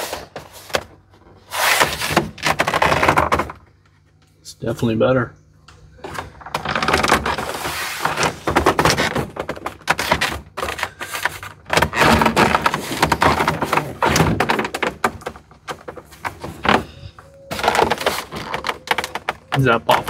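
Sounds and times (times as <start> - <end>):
plastic rubbing and creaking: 0.0 - 3.7, 6.0 - 20.0.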